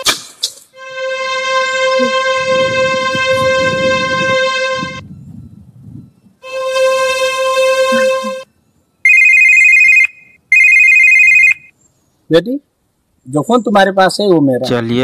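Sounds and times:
steady held tone: 0.0s - 10.0s
mobile phone ringtone: 0.8s - 11.7s.

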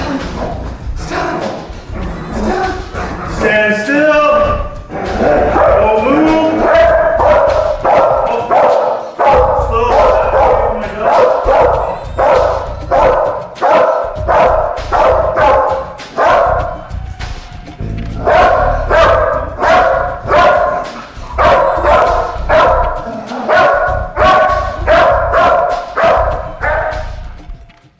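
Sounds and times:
music: 0.0s - 27.9s
dog barking rhythmically: 4.4s - 17.0s, 17.8s - 27.5s.

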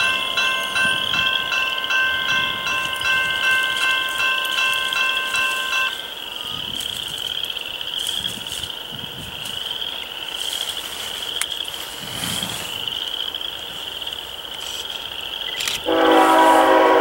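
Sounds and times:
train bell ringing: 0.0s - 6.8s, 15.9s - 17.0s.

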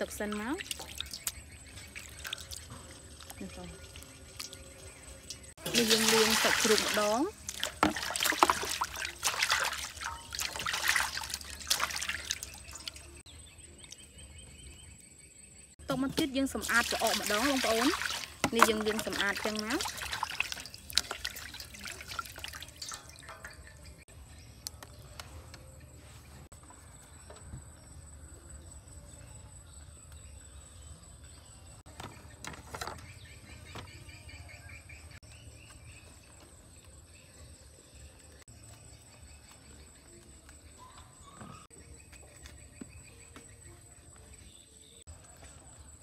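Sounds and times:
water splashing in steel bowl: 0.0s - 13.2s, 15.9s - 24.1s.

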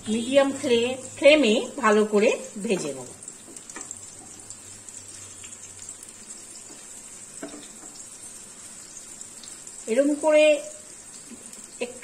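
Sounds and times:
okra sizzling in oil: 0.0s - 12.0s
spatula scraping and tapping wok: 6.6s - 8.0s.

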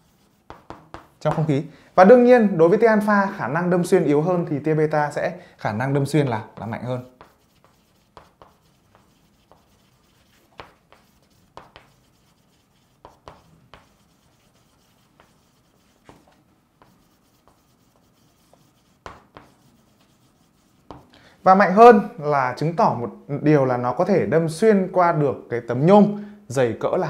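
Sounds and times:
chalk tapping and scratching: 0.0s - 1.6s, 6.5s - 21.2s.

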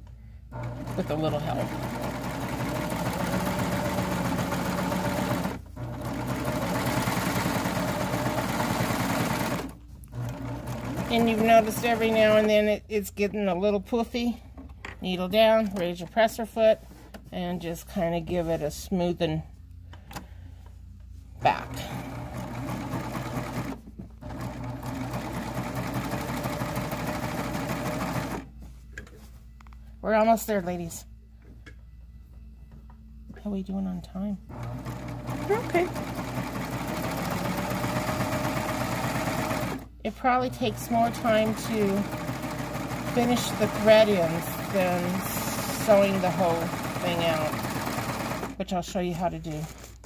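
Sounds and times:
serger sewing machine running: 0.5s - 12.4s, 21.5s - 28.4s, 34.5s - 48.6s.

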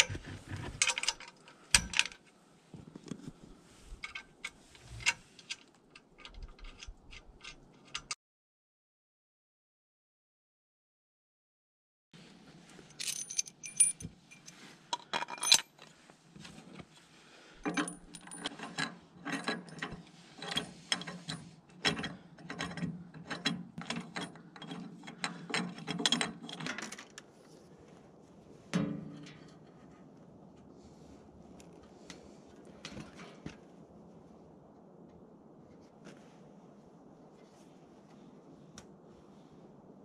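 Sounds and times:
metal clinks of washer and bolt: 0.0s - 2.2s, 13.0s - 15.8s, 17.6s - 27.1s.

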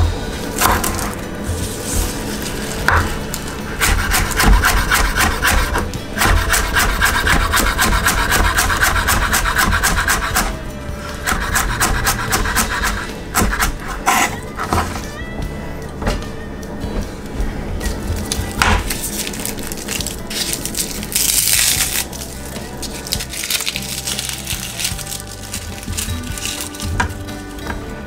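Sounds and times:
knife chopping on wooden board: 0.6s - 1.2s, 2.8s - 10.6s, 11.2s - 15.1s, 18.3s - 19.1s.

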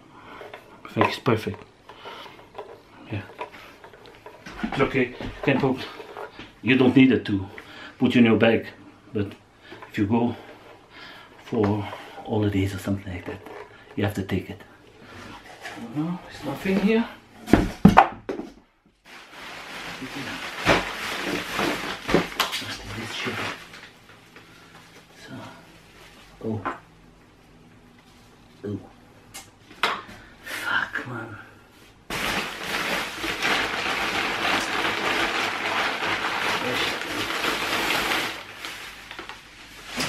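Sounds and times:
plastic bag crinkling: 1.0s - 6.8s, 19.0s - 25.0s, 32.1s - 40.0s.

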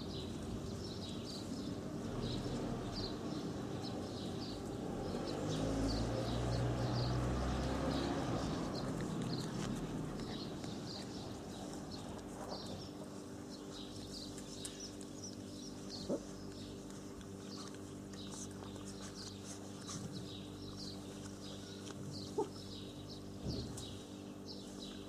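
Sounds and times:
small birds chirping: 0.0s - 25.0s
puppies whining: 7.7s - 23.3s.

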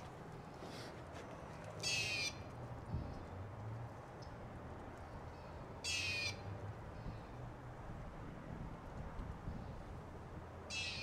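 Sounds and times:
bird's harsh call: 1.8s - 2.4s, 10.7s - 11.0s.

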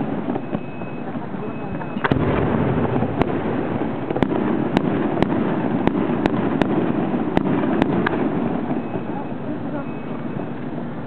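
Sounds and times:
background rumble: 0.0s - 11.0s
firework shells cracking: 1.9s - 9.3s.

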